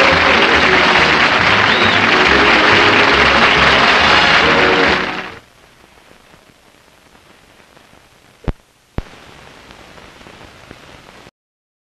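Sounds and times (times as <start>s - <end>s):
film soundtrack hiss and crackle: 0.0s - 11.3s
sharp pops: 8.4s - 9.8s.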